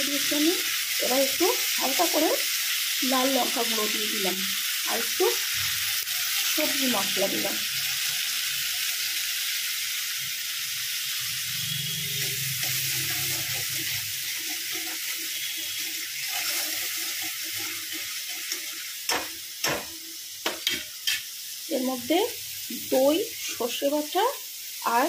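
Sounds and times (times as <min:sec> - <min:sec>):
chillies sizzling in hot oil: 0:00.0 - 0:25.0
spatula stirring in metal pan: 0:12.2 - 0:21.3
spatula knocking on pan: 0:19.1 - 0:20.8.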